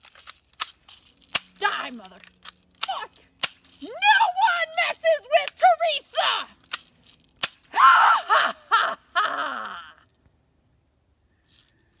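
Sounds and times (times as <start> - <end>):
woman crying out: 7.7 - 10.0.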